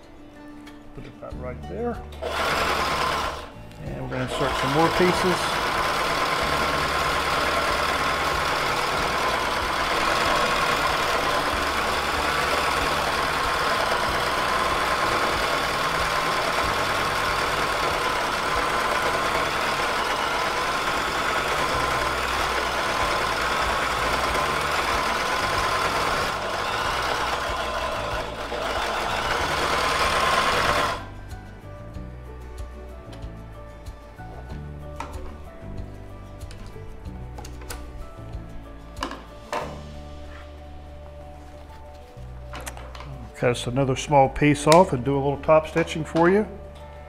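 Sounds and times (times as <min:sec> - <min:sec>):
sewing machine running: 0:02.2 - 0:31.1.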